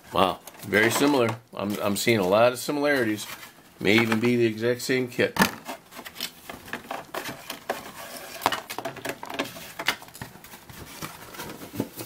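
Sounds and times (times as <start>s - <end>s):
plastic bags and paper rustling: 0.1s - 4.6s, 5.5s - 12.0s.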